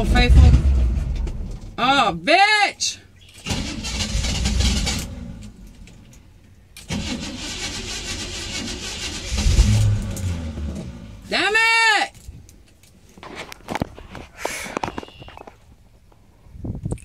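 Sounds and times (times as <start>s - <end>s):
starter cranking engine: 3.3s - 5.6s, 6.8s - 11.2s.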